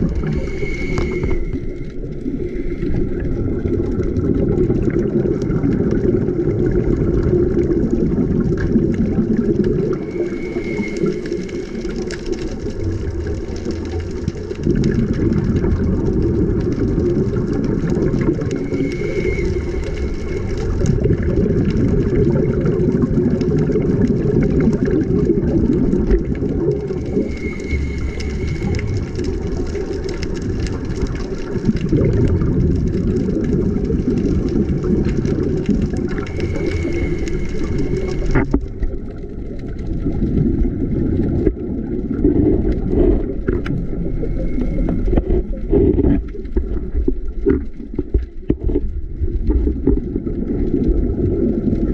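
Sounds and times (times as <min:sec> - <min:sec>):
breathing regulator hiss: 0:00.0 - 0:03.8, 0:09.9 - 0:12.2, 0:18.3 - 0:20.9, 0:26.8 - 0:29.5, 0:36.1 - 0:38.5, 0:43.9 - 0:45.2
underwater rumble and bubbles: 0:00.0 - 0:51.9.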